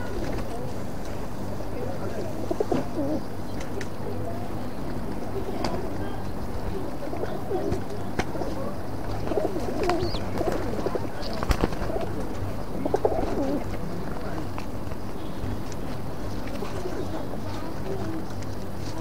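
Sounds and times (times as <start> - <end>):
pigeons cooing: 2.3 - 3.4, 6.9 - 13.8.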